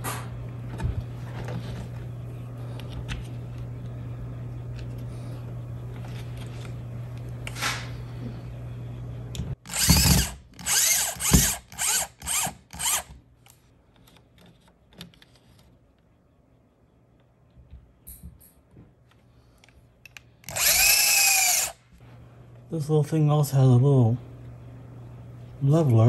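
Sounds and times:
power drill driving screw: 9.6s - 13.1s, 20.4s - 21.8s.

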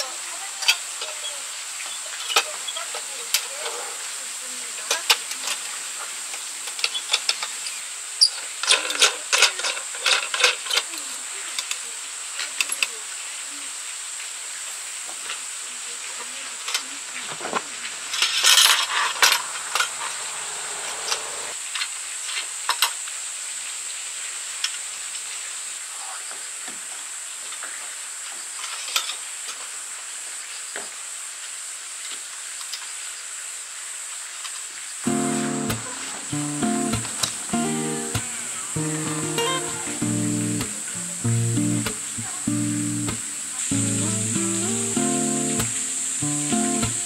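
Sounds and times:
steady high-pitched hiss: 0.0s - 47.0s
scraping rustle: 16.7s - 21.6s.

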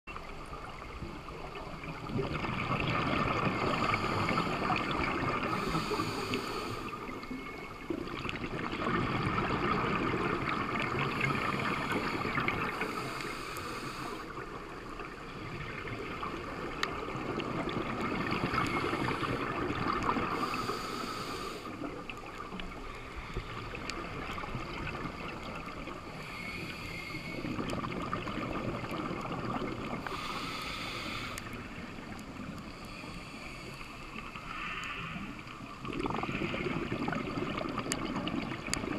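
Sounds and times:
muffled underwater rush: 0.1s - 38.9s.

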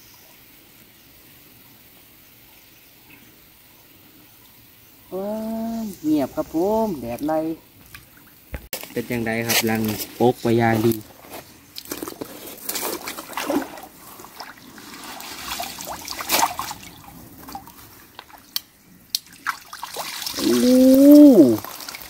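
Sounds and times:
stream water sloshing and splashing: 4.4s - 22.0s
short voiced exclamation: 5.1s - 7.6s, 20.4s - 21.6s
water dripping off a net: 11.7s - 22.0s.

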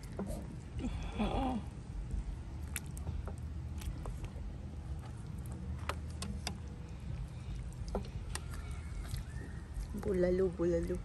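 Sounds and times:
steady low rumble: 0.0s - 11.0s.

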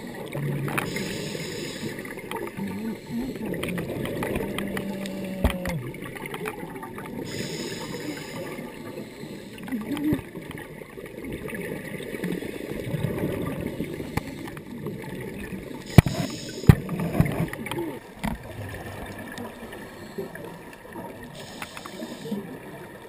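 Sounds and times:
bubbles gurgling: 0.0s - 23.0s
diver breathing underwater: 0.8s - 5.3s, 7.2s - 9.7s, 15.8s - 17.5s, 18.4s - 22.6s
brief hiss: 7.3s - 8.5s, 15.9s - 17.2s, 21.4s - 22.4s.

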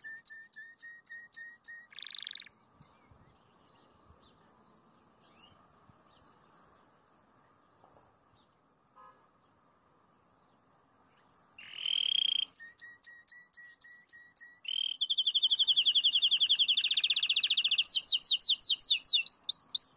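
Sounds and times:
canary singing trills: 0.0s - 2.6s, 10.9s - 19.9s.

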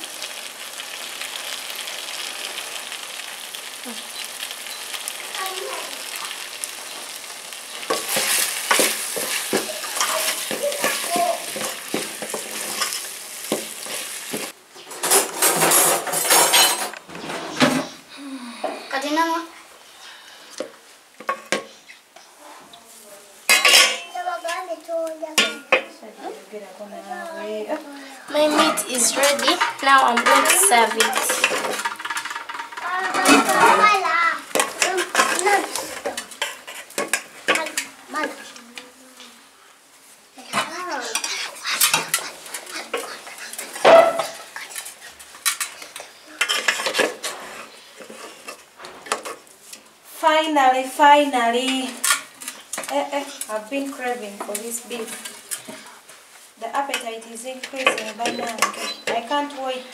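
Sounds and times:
wooden spatula scraping metal pot: 7.8s - 17.7s, 28.3s - 38.6s, 40.5s - 49.4s, 51.6s - 56.1s, 56.7s - 59.9s.

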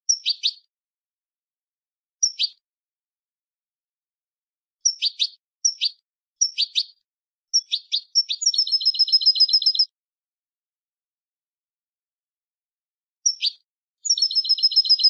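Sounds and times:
fast bird trill: 0.1s - 0.6s, 2.2s - 2.6s, 4.8s - 7.0s, 7.6s - 9.9s, 13.3s - 15.0s
goldfinch twittering song: 0.1s - 0.7s, 2.2s - 2.6s, 4.8s - 9.9s, 13.2s - 15.0s.

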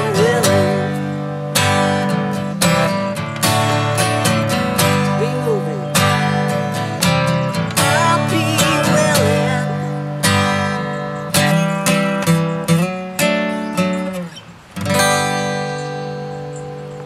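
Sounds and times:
person singing: 0.0s - 1.4s, 5.0s - 10.6s
acoustic guitar strumming chords: 0.0s - 17.0s.

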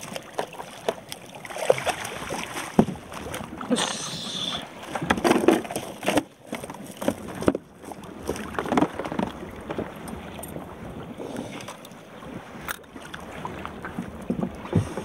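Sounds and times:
wind: 0.0s - 15.0s
water rushing: 1.4s - 5.2s.

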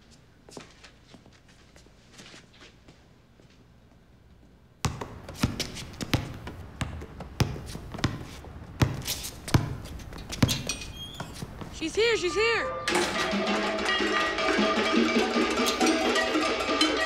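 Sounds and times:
background noise: 0.0s - 17.0s.

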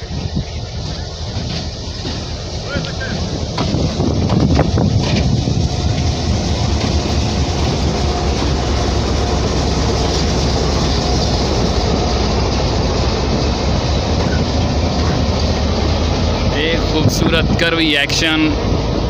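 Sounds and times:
diesel locomotive passing: 0.0s - 19.0s.

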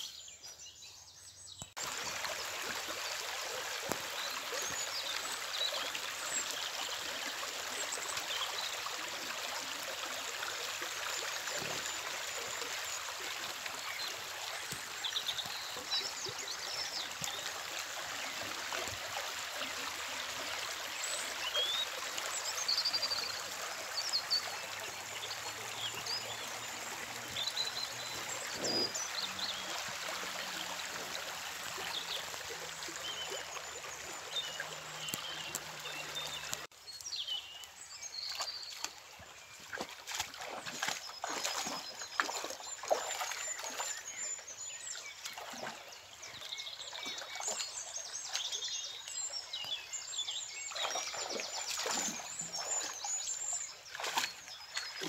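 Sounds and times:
stream rippling over rocks: 1.5s - 55.0s
small birds chirping: 31.7s - 55.0s.

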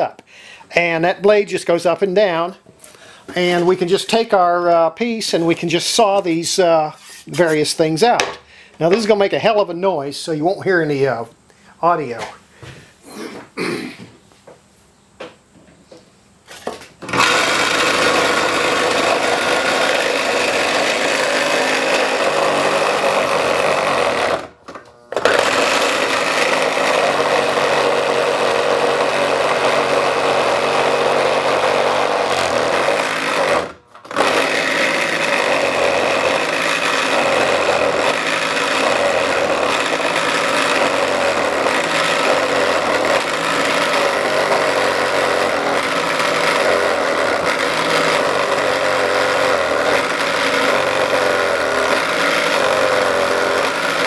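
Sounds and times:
scroll saw buzzing: 16.5s - 54.0s.

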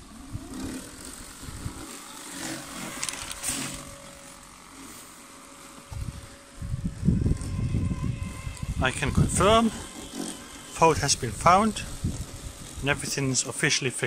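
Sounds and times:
robotic lawnmower motor hum: 0.0s - 14.0s.

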